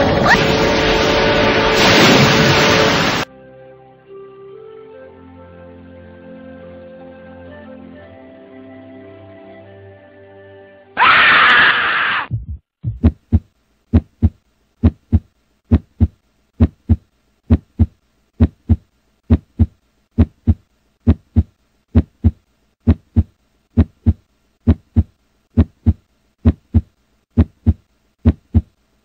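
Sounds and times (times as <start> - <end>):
loud scream: 11.0 - 12.3
heartbeat thumps: 12.3 - 28.8.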